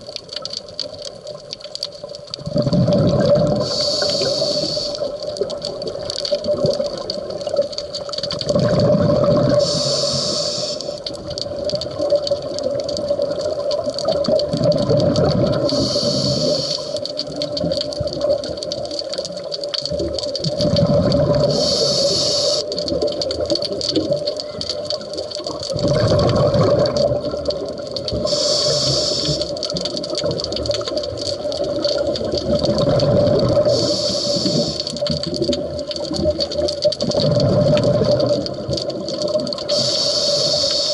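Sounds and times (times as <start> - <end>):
exhaled bubbles burbling: 0.0 - 40.5
regulator inhalation hiss: 3.6 - 5.2, 9.5 - 11.1, 15.6 - 17.2, 21.5 - 22.8, 28.2 - 29.6, 33.6 - 35.0, 39.7 - 40.9.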